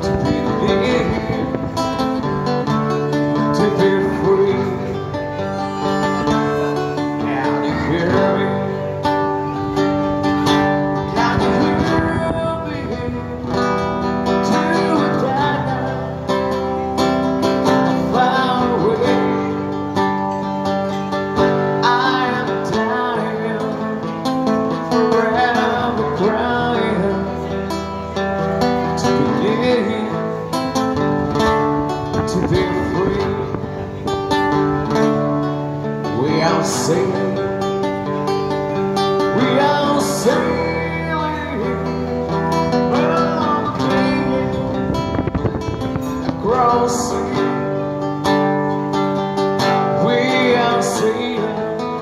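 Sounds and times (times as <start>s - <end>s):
man singing: 0.0s - 52.0s
strummed acoustic guitar: 0.0s - 52.0s.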